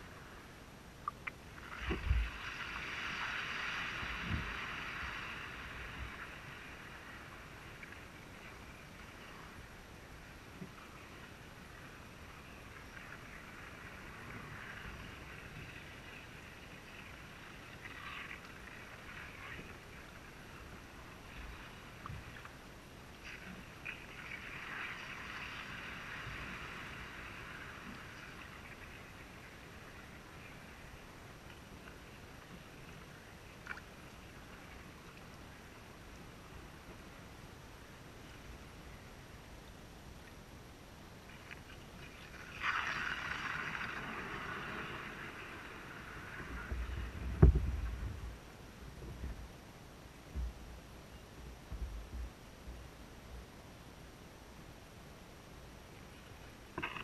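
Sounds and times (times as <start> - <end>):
water swishing: 0.0 - 39.6, 41.2 - 49.5, 56.0 - 57.0
water splashing and trickling: 1.0 - 9.6, 41.3 - 48.2
light knocks on kayak: 46.7 - 48.0
low thumps: 47.2 - 48.4.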